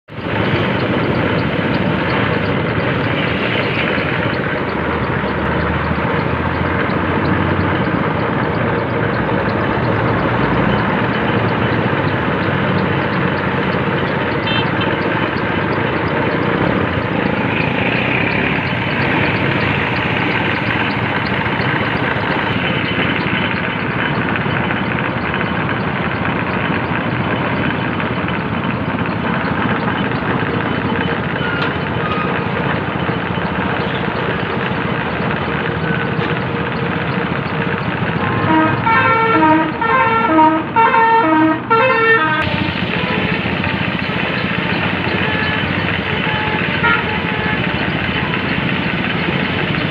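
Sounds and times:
vehicle horn short notes: 38.3s - 42.4s, 46.2s - 47.6s.

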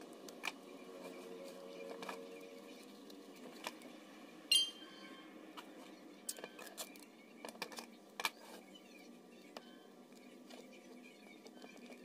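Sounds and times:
short ringing clink: 4.5s - 5.0s.

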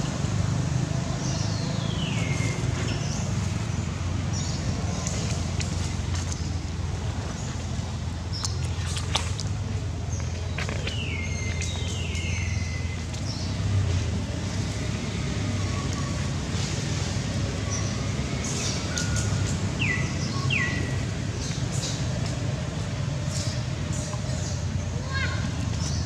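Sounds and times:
birds whistling and chirping: 10.4s - 13.6s, 17.6s - 22.0s.

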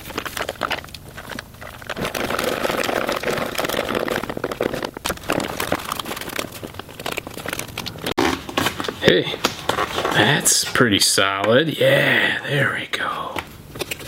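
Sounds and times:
wires and plastic rustling: 0.0s - 11.2s.

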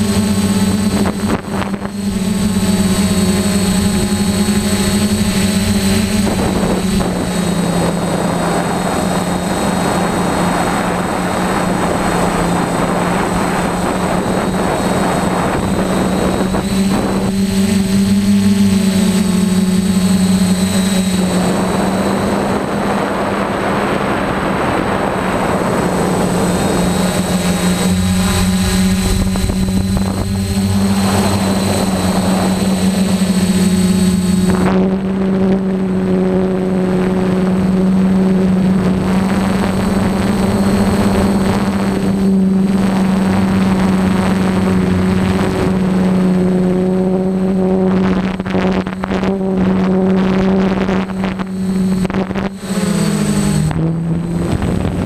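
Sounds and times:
drone motors buzzing: 0.0s - 55.0s
faint high whine: 0.0s - 55.0s
rushing noise: 24.2s - 35.2s.

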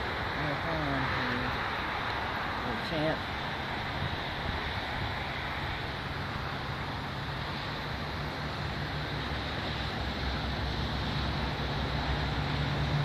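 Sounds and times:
strong wind on microphone: 0.0s - 7.7s.

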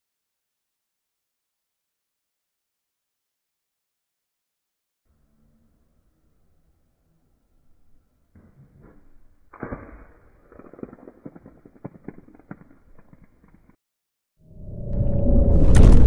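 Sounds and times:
irregular clicks and crackle: 9.5s - 13.8s
rising rumble: 14.4s - 16.0s.

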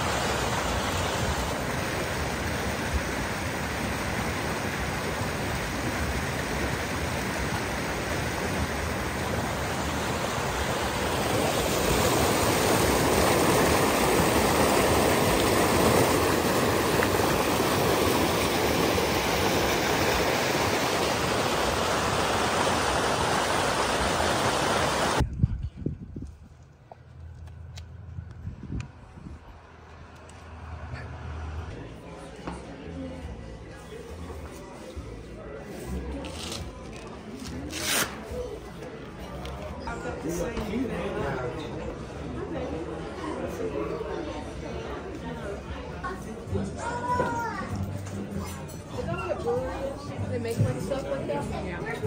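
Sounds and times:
river rushing over rocks: 0.0s - 25.2s.

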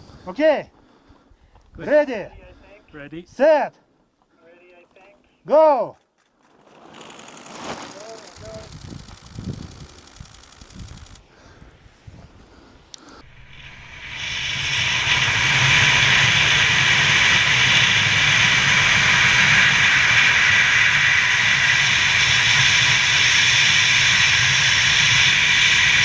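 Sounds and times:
wind buffeting microphone: 8.3s - 26.0s.

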